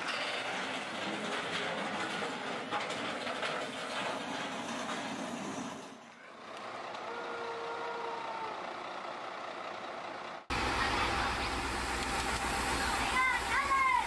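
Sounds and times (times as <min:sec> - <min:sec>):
diesel engine running: 0:04.0 - 0:14.0
low engine rumble: 0:04.2 - 0:14.0.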